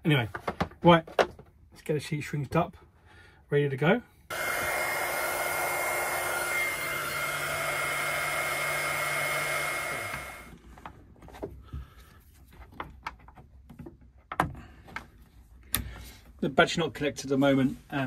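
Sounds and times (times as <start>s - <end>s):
fan running down: 4.3s - 10.6s
heat gun blowing with whine: 4.3s - 10.6s.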